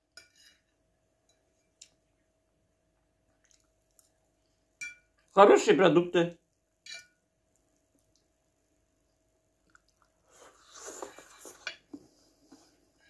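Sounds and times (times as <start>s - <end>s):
person chewing food: 3.1s - 4.7s, 7.4s - 12.0s.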